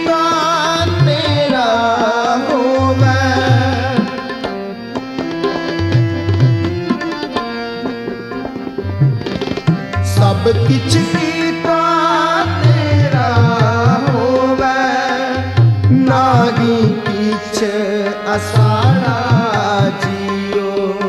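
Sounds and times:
person singing devotional song: 0.0 - 4.6, 10.0 - 21.0
tabla strokes: 0.8 - 14.6.

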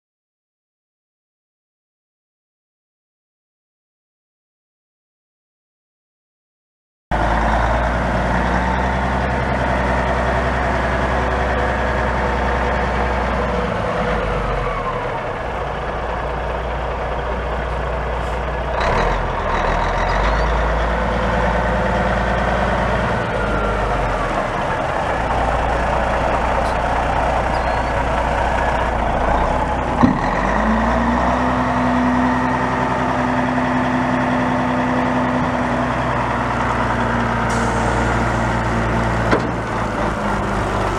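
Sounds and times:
diesel truck engine running: 7.1 - 40.9
sharp clunk: 39.3 - 39.6.

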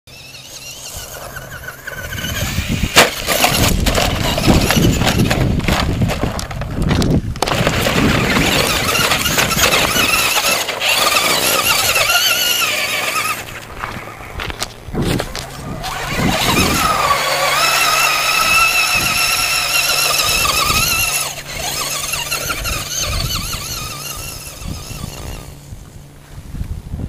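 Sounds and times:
electric motor whining: 0.1 - 6.7, 7.4 - 26.0
tyres crunching on gravel: 0.5 - 25.7.

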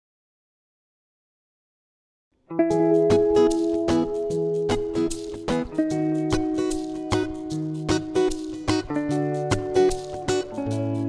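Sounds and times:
plucked acoustic guitar tune: 2.5 - 11.0.

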